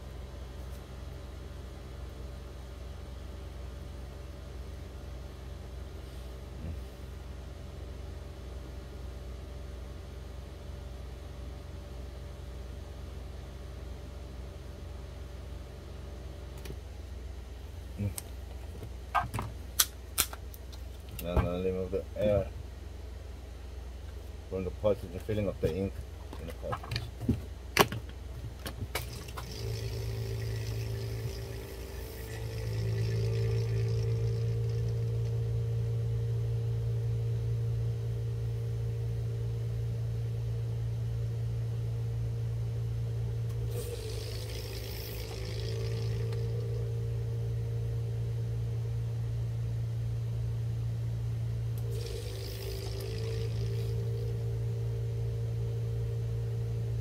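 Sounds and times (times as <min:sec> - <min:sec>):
electric pump humming: 0:24.1 - 0:57.0.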